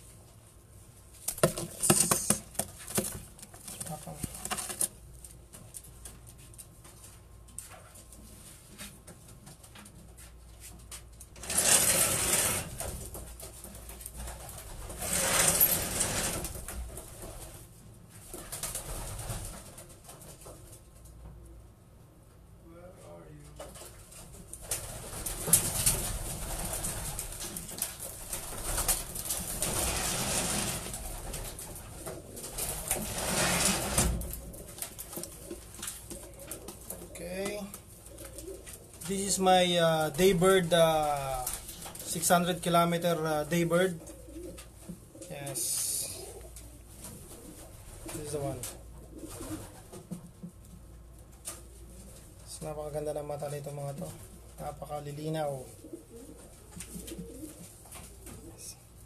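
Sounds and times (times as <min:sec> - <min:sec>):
pigeon wings flapping: 0:01.3 - 0:05.0, 0:11.4 - 0:20.7, 0:23.7 - 0:39.0, 0:40.4 - 0:42.2
pigeons cooing: 0:25.0 - 0:39.5, 0:43.6 - 0:50.0, 0:55.7 - 0:59.0.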